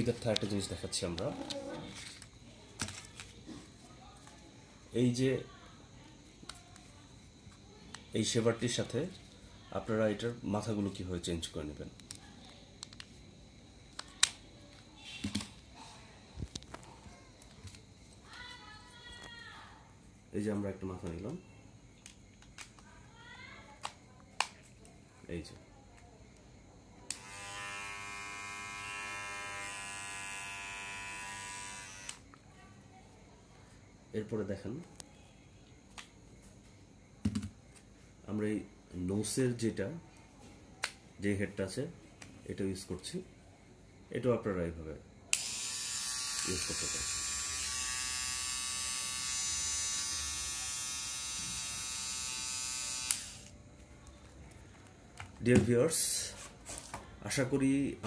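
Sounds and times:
hair trimmer switch click: 0:27.1 - 0:27.4, 0:52.8 - 0:53.5
hair trimmer buzzing: 0:27.1 - 0:32.2, 0:45.3 - 0:53.5.

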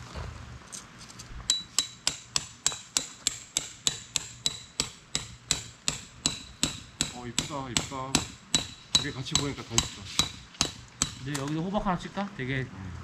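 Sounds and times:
hammer striking metal tent peg: 0:01.5 - 0:11.6.

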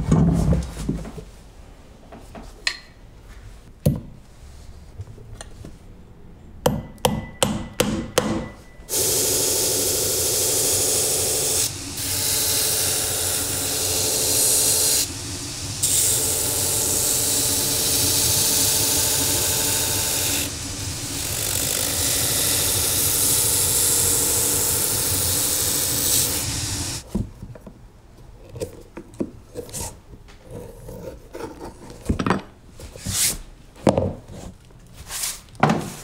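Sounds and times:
machine hum: 0:08.4 - 0:27.0
sanding wheel grinding leather: 0:08.9 - 0:27.0.

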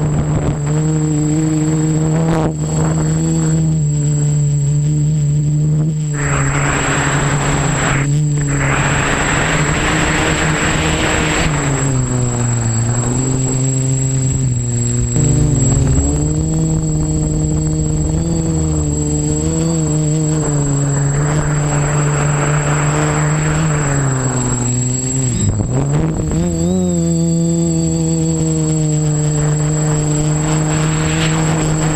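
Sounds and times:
faint high whine: 0:00.0 - 0:31.9
quadcopter propellers droning: 0:00.0 - 0:31.9
rushing air: 0:05.9 - 0:26.5, 0:29.0 - 0:31.9.

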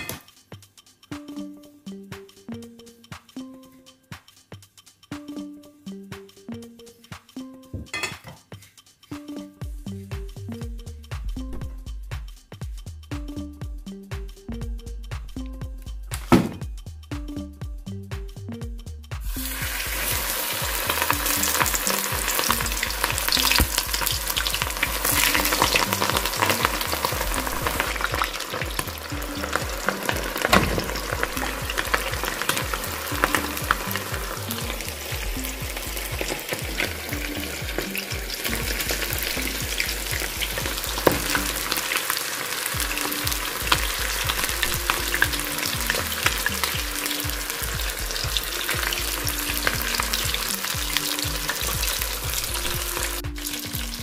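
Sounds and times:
oil sizzling and crackling: 0:19.2 - 0:54.0.

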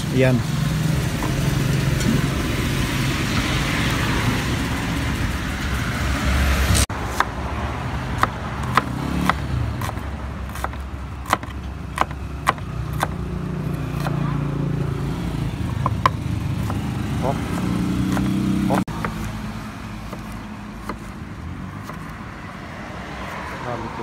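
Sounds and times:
road traffic: 0:00.0 - 0:24.0
knife chopping on wooden board: 0:08.2 - 0:14.2, 0:15.8 - 0:19.4, 0:20.0 - 0:21.2, 0:21.8 - 0:22.1.

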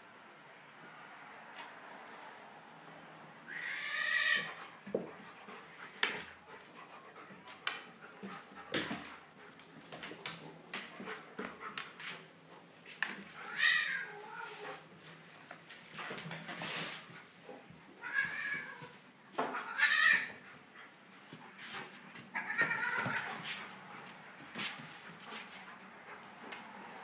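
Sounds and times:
animals scuffling on wooden floor: 0:04.2 - 0:27.0
high drawn-out animal cries: 0:19.6 - 0:20.3.

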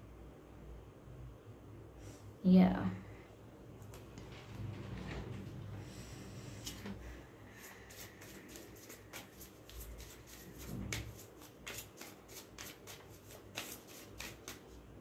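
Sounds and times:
cards being shuffled: 0:07.7 - 0:14.8.

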